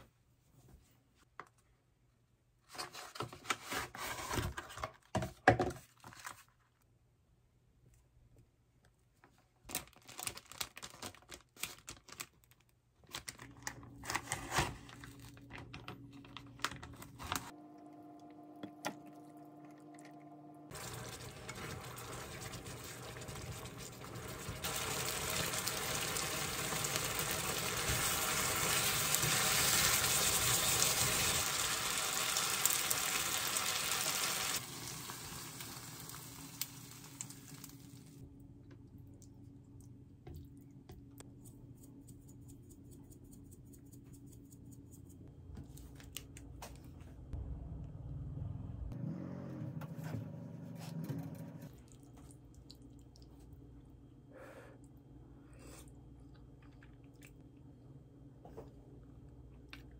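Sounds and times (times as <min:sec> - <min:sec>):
plastic containers clicking and crinkling: 0:13.0 - 0:17.5
food sizzling in a frying pan: 0:20.7 - 0:38.1.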